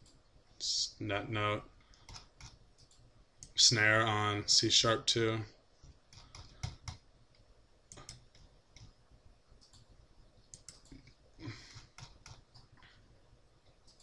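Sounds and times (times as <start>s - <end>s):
computer mouse clicks: 1.9s - 3.6s, 5.8s - 9.0s, 9.6s - 11.2s, 11.8s - 12.9s, 13.6s - 14.0s.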